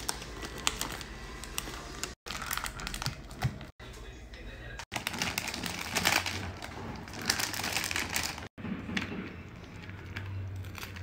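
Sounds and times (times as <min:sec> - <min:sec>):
chip bag crinkling: 0:00.0 - 0:03.4, 0:04.9 - 0:08.5.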